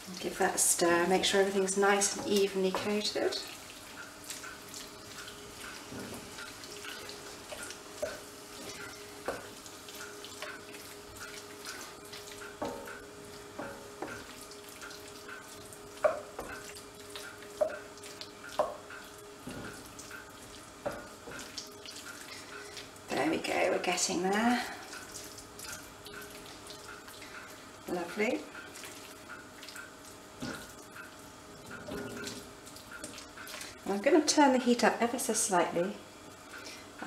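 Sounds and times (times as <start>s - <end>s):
spatula scraping and knocking pan: 16.0s - 16.7s, 18.6s - 19.9s.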